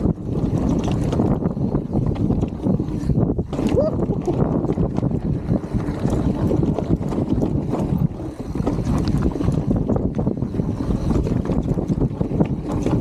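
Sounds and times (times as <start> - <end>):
bike rattling: 0.0 - 13.0
tyres rumbling over dirt: 0.0 - 13.0
wind buffeting microphone: 0.0 - 13.0.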